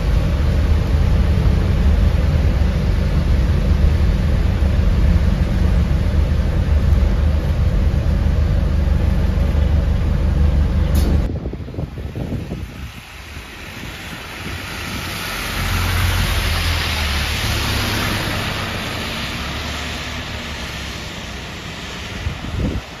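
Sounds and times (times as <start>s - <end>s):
bus engine hum: 0.0s - 23.0s
tyres hissing on wet road: 0.0s - 23.0s.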